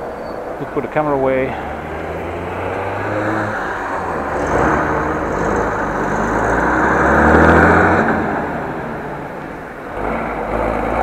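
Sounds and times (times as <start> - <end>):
cars passing: 0.0 - 11.0
truck passing: 0.0 - 11.0.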